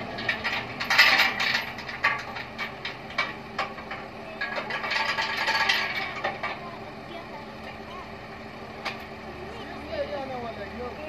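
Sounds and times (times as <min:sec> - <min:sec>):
sharp knocks and clanks: 0:00.0 - 0:06.9, 0:08.7 - 0:09.2
diesel engine idling: 0:00.0 - 0:11.0.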